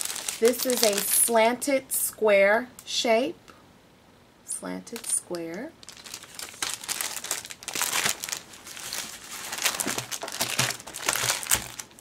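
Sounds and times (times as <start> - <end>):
plastic packaging crinkling: 0.0 - 1.4, 4.9 - 12.0.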